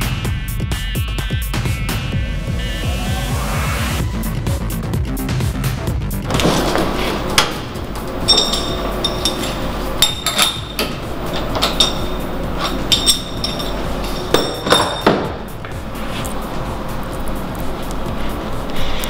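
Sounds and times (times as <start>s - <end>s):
metal clinks and taps: 8.0s - 15.8s.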